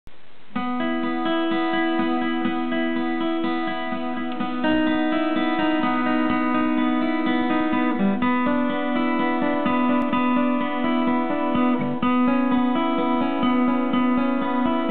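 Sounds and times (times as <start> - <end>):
acoustic guitar fingerpicking chords: 0.1 - 14.9.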